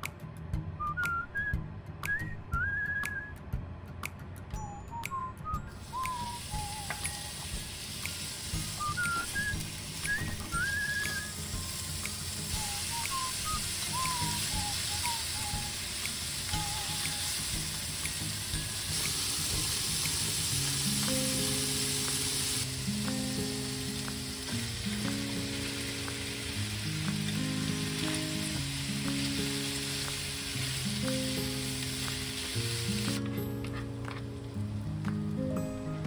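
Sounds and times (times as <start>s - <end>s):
soft background music: 0.0s - 36.0s
meat sizzling in a frying pan: 5.8s - 33.2s.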